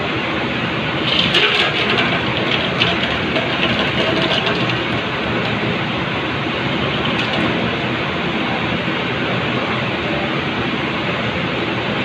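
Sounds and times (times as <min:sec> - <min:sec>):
ice cubes clattering into metal tray: 0:01.0 - 0:05.8, 0:06.8 - 0:07.7.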